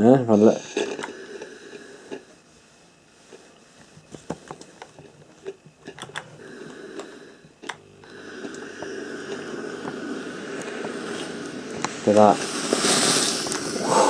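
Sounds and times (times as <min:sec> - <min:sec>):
steam hissing: 0:08.0 - 0:14.0.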